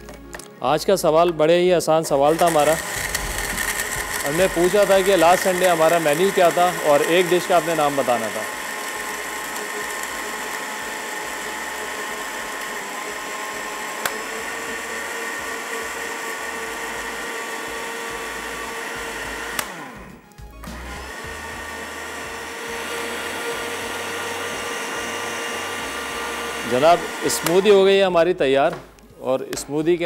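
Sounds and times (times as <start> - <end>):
electric blender running: 2.2 - 28.0
blender switch click: 14.0 - 14.3, 19.5 - 19.8, 27.2 - 27.6.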